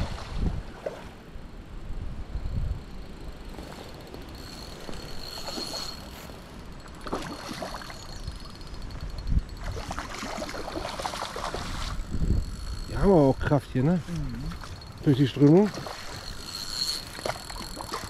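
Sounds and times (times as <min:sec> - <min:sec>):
wind on microphone: 0:00.0 - 0:00.9, 0:08.0 - 0:18.0
stream water flowing: 0:03.4 - 0:08.7, 0:09.5 - 0:13.0, 0:14.2 - 0:18.0.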